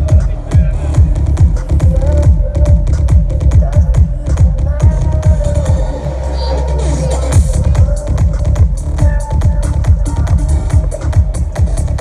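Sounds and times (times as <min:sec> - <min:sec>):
deep bass note: 0:00.0 - 0:03.3
fast kick-drum beat: 0:00.0 - 0:05.9, 0:07.3 - 0:12.0
electronic dance music: 0:00.0 - 0:12.0.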